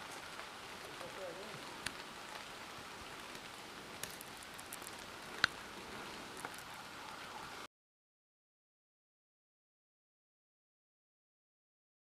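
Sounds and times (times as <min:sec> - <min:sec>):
faint outdoor hiss: 0:00.0 - 0:07.7.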